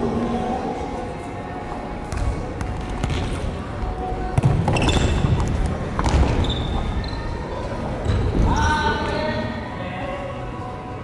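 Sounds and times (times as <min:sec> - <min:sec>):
court shoes squeaking: 0:04.3 - 0:09.3.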